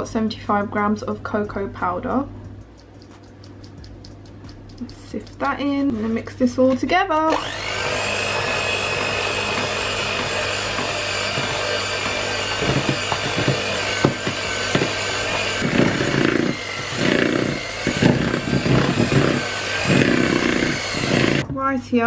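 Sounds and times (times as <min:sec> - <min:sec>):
beaters thumping through dough: 0:02.6 - 0:21.6
electric hand mixer running: 0:07.3 - 0:21.4.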